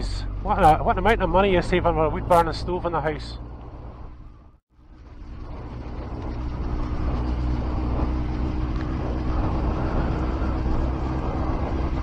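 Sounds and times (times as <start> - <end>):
motorcycle engine running: 0.0 - 12.0
road and wind noise: 0.0 - 12.0.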